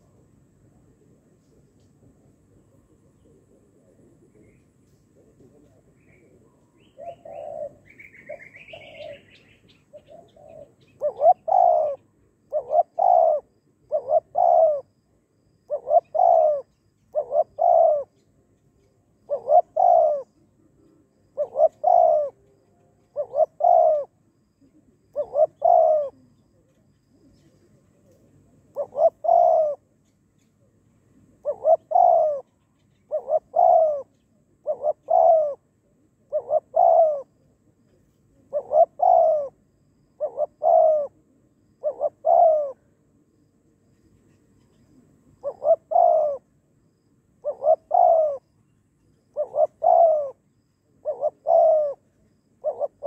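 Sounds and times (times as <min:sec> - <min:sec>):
dove cooing: 0:00.0 - 0:30.0, 0:30.6 - 0:43.2, 0:44.2 - 0:46.6, 0:47.4 - 0:53.0.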